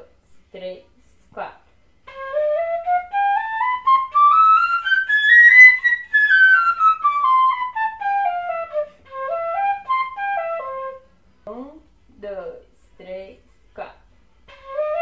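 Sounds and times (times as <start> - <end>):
fife playing fast scales: 2.1 - 11.0.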